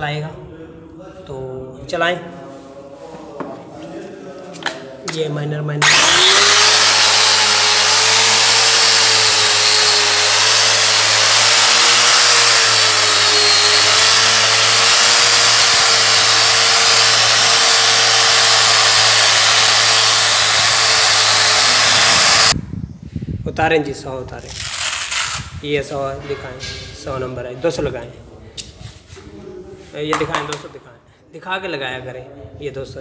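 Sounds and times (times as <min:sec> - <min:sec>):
angle grinder polishing marble: 0:05.8 - 0:22.6.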